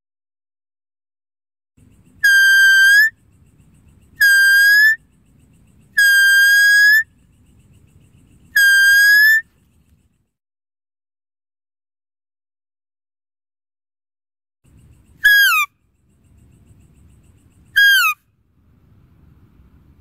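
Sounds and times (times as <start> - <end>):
high whistles of deer call: 2.2 - 3.2, 4.2 - 5.1, 5.9 - 7.2, 8.5 - 9.5, 15.2 - 15.8, 17.7 - 18.3.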